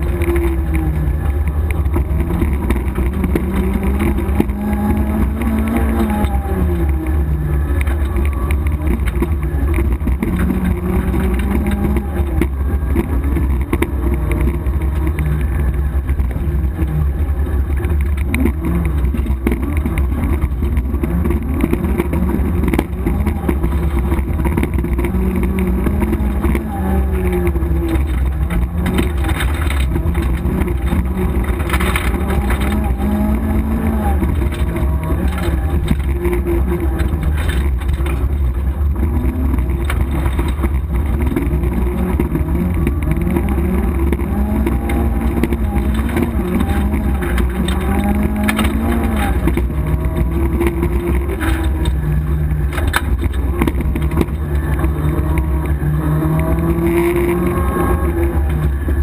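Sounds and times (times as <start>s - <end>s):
car engine revving through gear changes: 0.0s - 59.0s.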